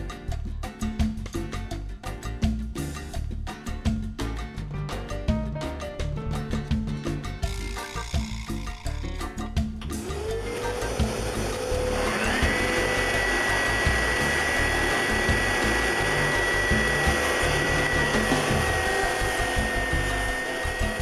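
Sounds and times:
dust extraction vacuum: 0:10.0 - 0:21.0
belt sander motor whine: 0:10.1 - 0:21.0.

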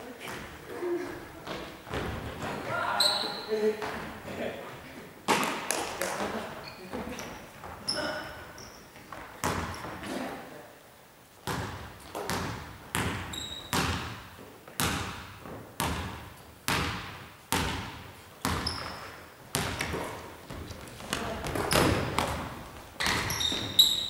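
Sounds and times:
sneakers squeaking: 0:00.2 - 0:04.4, 0:05.3 - 0:10.2, 0:11.4 - 0:24.0
basketball bouncing on wooden floor: 0:01.4 - 0:02.7, 0:09.0 - 0:10.0, 0:11.4 - 0:24.0.

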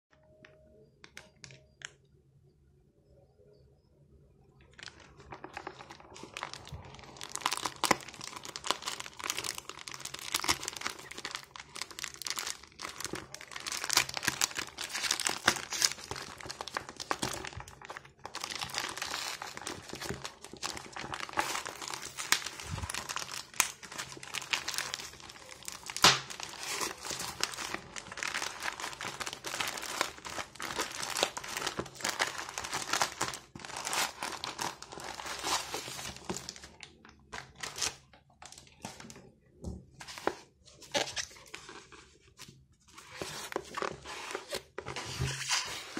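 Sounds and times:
plastic mailer bag crinkling: 0:04.7 - 0:39.2
plastic bag ripping: 0:05.5 - 0:36.7.

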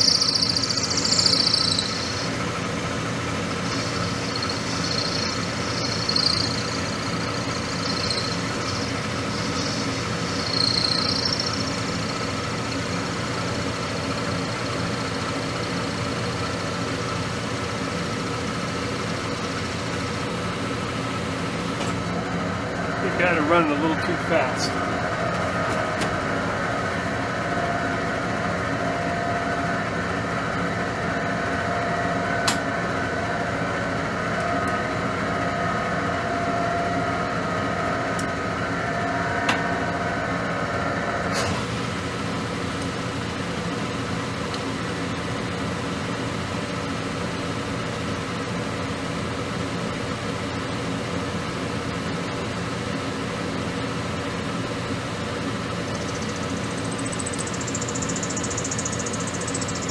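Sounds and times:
metal lathe humming: 0:00.0 - 0:47.7
high machine whine: 0:00.0 - 0:59.9
sharp ticks: 0:03.7 - 0:12.1.

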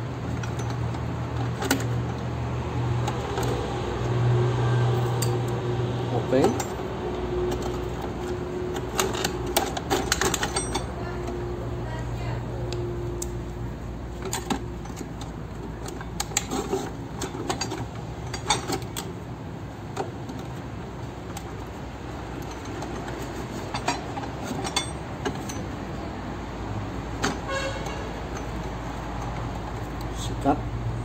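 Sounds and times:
metal tools clinking: 0:06.3 - 0:11.4, 0:14.2 - 0:19.2, 0:22.3 - 0:25.8.

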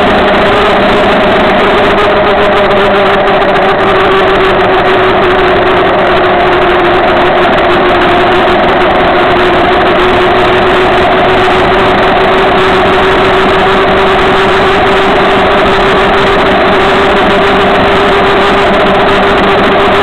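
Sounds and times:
motorcycle engine drone: 0:00.0 - 0:20.0
wind noise on microphone: 0:00.0 - 0:20.0.

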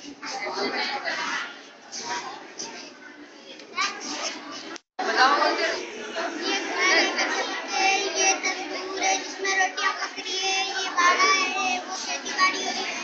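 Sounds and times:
child chanting sing-song: 0:06.3 - 0:13.0.

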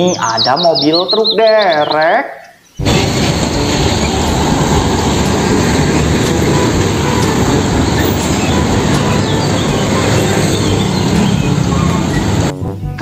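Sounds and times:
tyres on road: 0:02.8 - 0:12.5
diesel truck engine rumble: 0:02.8 - 0:12.6.

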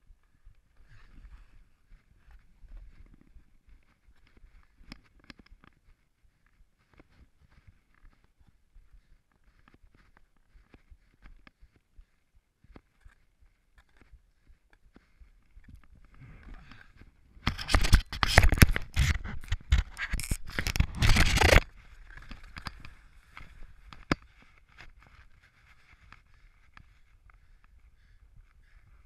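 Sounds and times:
light ticks: 0:09.3 - 0:11.9.

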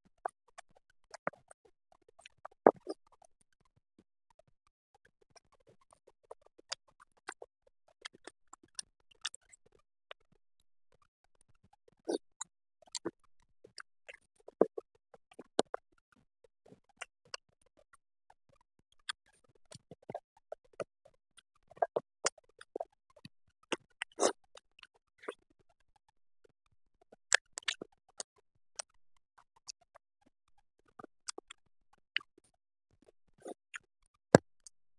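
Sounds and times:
person chewing: 0:02.7 - 0:03.0, 0:24.0 - 0:24.4, 0:27.3 - 0:27.8.

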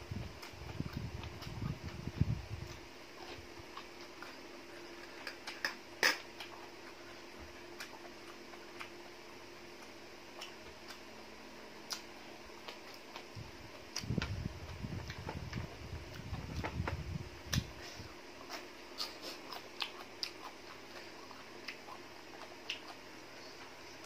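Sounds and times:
faint hum: 0:00.0 - 0:24.0
close-up chewing: 0:00.2 - 0:11.1, 0:11.8 - 0:24.0.

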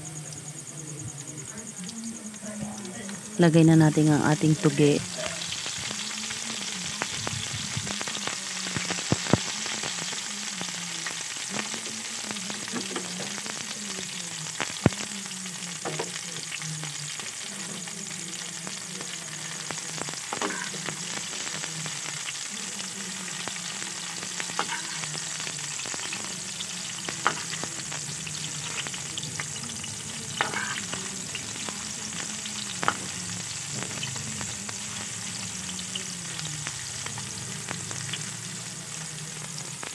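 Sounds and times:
bean sprouts sizzling in oil: 0:00.0 - 0:39.9
spatula clicking on pan: 0:30.4 - 0:30.8.

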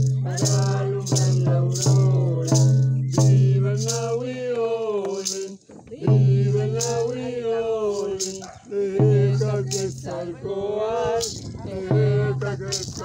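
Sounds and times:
frame drum beating: 0:00.0 - 0:04.2, 0:06.1 - 0:07.4, 0:08.0 - 0:10.1, 0:11.2 - 0:13.0
rattle shaking: 0:00.0 - 0:04.3, 0:05.1 - 0:05.7, 0:06.4 - 0:10.3, 0:11.2 - 0:11.6, 0:12.4 - 0:13.0
man chanting: 0:00.0 - 0:13.0.

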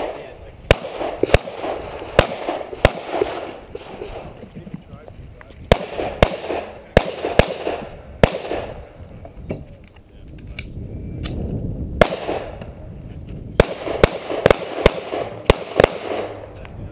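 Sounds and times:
pistol shots with echo: 0:00.0 - 0:04.4, 0:05.7 - 0:09.0, 0:12.0 - 0:12.8, 0:13.6 - 0:16.6.

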